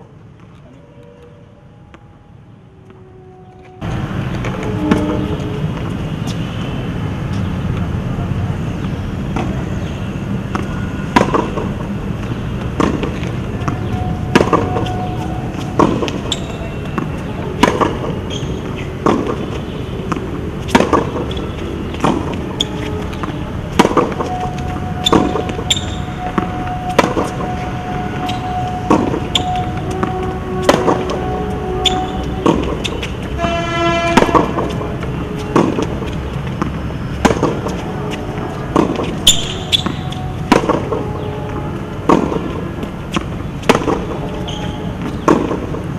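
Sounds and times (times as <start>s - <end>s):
traffic noise: 0.0s - 45.9s
vehicle horns: 0.7s - 7.6s, 9.4s - 45.8s
tennis ball hits and bounces: 8.8s - 9.9s, 10.5s - 27.6s, 28.2s - 41.3s, 42.0s - 45.9s.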